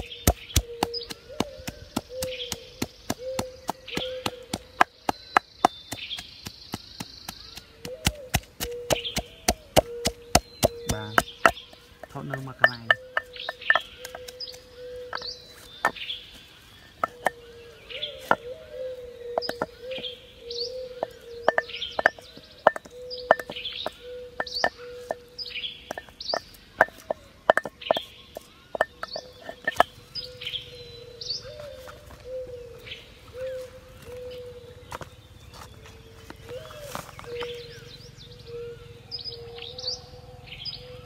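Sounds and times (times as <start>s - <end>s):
clay mortar knocks and taps: 0.0s - 16.0s, 17.0s - 17.4s, 18.2s - 18.5s, 19.4s - 20.1s, 21.0s - 25.2s, 25.9s - 30.0s
birds chirping: 0.0s - 41.0s.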